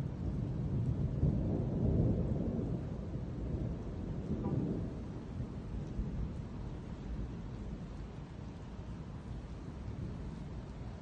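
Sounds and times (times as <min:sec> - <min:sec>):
rolling thunder: 0:00.0 - 0:08.4.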